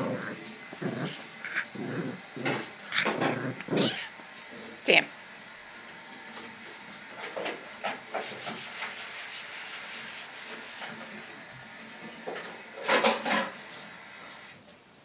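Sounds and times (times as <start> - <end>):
dog rubbing at scarf on carpet: 8.1 - 11.1.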